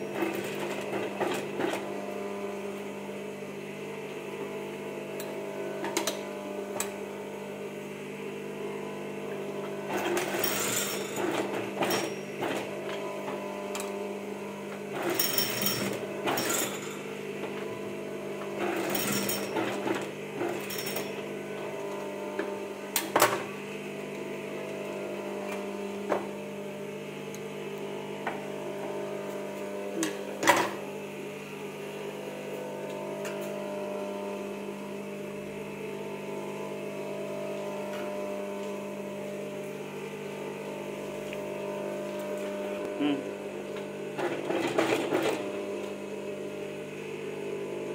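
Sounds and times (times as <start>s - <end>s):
sewing machine motor humming: 9.9s - 14.1s, 18.6s - 26.4s, 41.5s - 46.1s.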